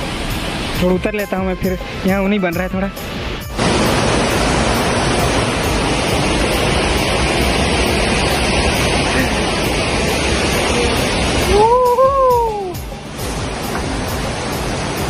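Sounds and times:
waterfall rushing: 0.0s - 15.0s
person calling: 11.4s - 12.8s.

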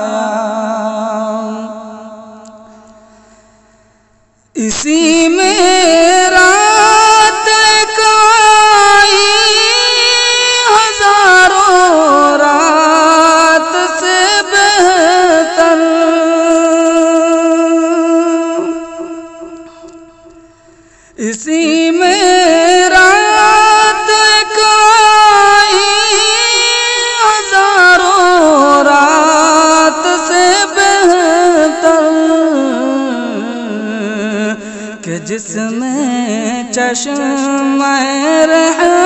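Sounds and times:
person singing unaccompanied: 0.0s - 2.8s, 4.6s - 20.4s, 21.2s - 39.0s.

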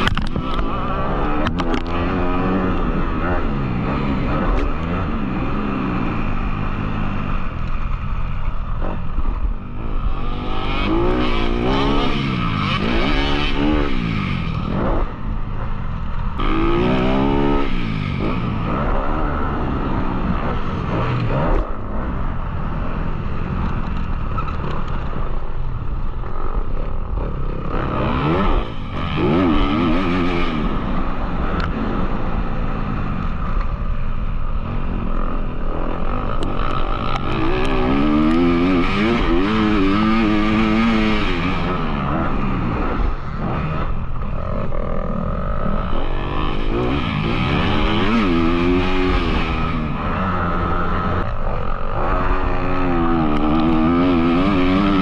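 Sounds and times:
dirt bike engine revving: 0.0s - 23.6s, 26.1s - 55.0s.

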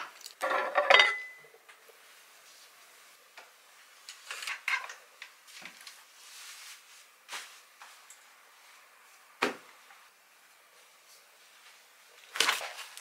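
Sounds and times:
ceramic dishes being stacked: 0.4s - 1.4s
ringing clink of dishes: 0.4s - 1.5s.

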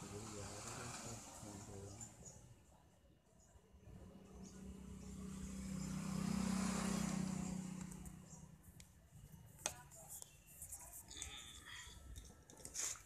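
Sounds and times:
vehicle passing by: 0.0s - 2.1s, 3.9s - 8.7s.

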